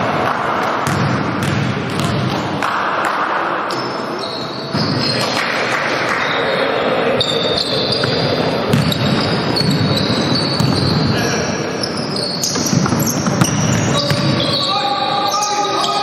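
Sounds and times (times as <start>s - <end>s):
basketball bouncing on court: 0.1s - 2.7s, 7.9s - 11.1s, 12.4s - 14.6s
sneaker squeaks: 3.7s - 5.4s, 7.2s - 16.0s.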